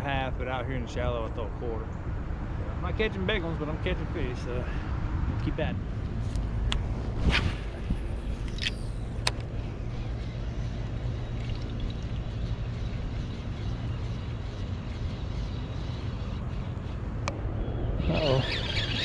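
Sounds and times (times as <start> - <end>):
reel low rumble: 5.3 - 19.0
fishing rod swish: 7.0 - 9.1.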